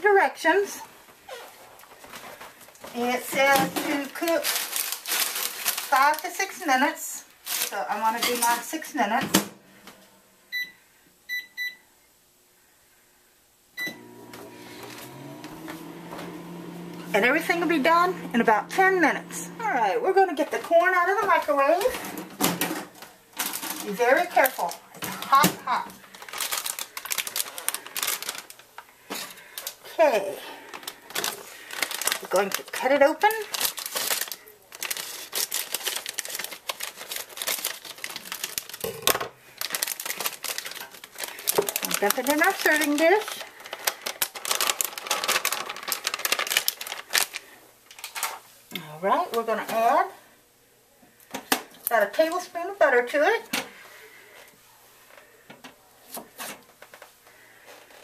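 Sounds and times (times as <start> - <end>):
plastic bag crinkling: 1.3 - 8.9, 22.8 - 48.6
microwave keypad beeping: 10.5 - 11.8, 13.8 - 14.1
microwave oven humming: 13.8 - 20.3.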